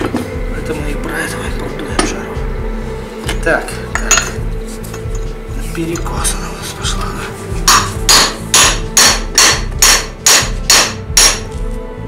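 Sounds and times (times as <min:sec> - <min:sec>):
hammer striking metal: 0:07.6 - 0:11.6.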